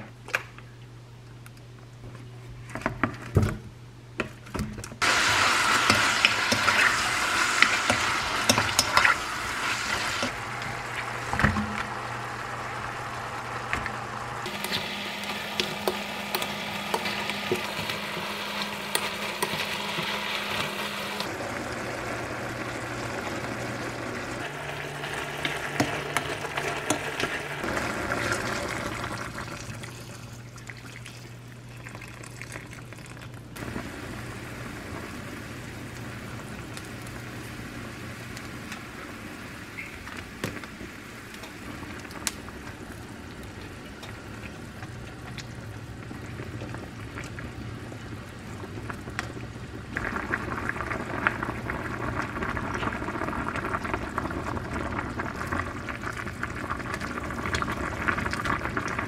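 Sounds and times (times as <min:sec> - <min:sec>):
meat and onions sizzling: 0:05.0 - 0:29.5, 0:33.6 - 0:43.3
broth pouring: 0:05.0 - 0:37.6
pot simmering: 0:05.0 - 0:59.0.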